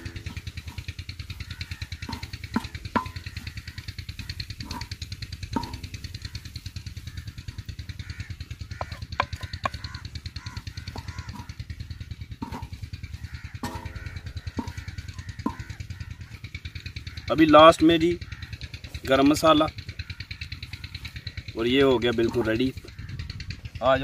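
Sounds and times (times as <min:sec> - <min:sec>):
crows cawing: 0:00.0 - 0:24.0
low mechanical throb: 0:00.0 - 0:24.0
wooden spatula scraping iron pan: 0:02.0 - 0:05.0, 0:12.4 - 0:15.8.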